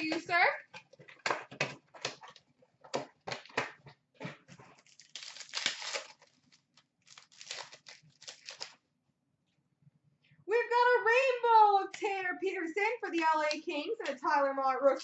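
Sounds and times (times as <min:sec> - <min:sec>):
foil pack tearing and crinkling: 0:04.7 - 0:08.8.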